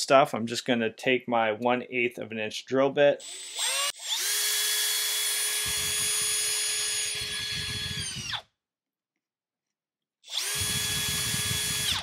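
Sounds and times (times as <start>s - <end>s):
cordless drill whining: 3.2s - 8.5s, 10.2s - 12.0s
drill bit rumbling in pipe: 5.3s - 8.4s, 10.3s - 12.0s.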